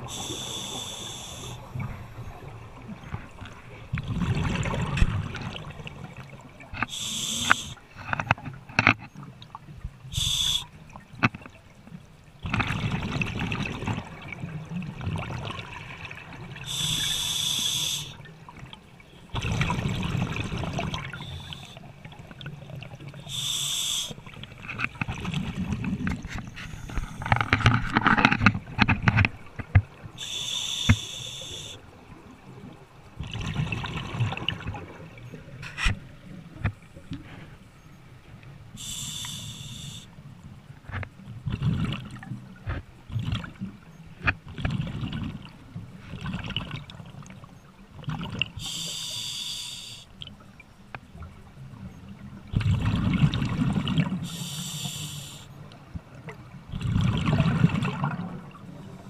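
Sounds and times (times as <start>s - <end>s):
hissing regulator inhale: 0.0s - 2.0s, 6.8s - 7.8s, 10.1s - 10.7s, 16.6s - 18.2s, 21.1s - 21.9s, 23.2s - 24.3s, 30.2s - 31.8s, 38.8s - 40.2s, 48.6s - 50.1s, 54.2s - 55.6s
rush of exhaled bubbles: 3.8s - 6.2s, 19.4s - 21.7s, 41.5s - 42.3s, 52.5s - 55.4s, 56.7s - 59.0s.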